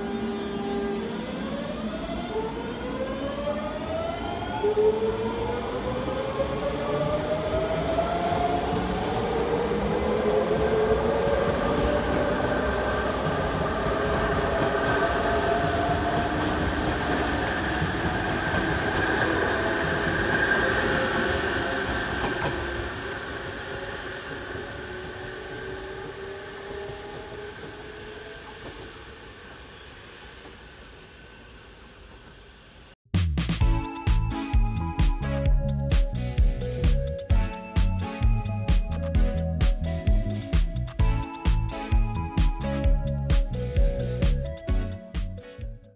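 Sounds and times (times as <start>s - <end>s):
train wheels on track: 0.0s - 32.9s
electric train whine rising: 0.0s - 33.0s.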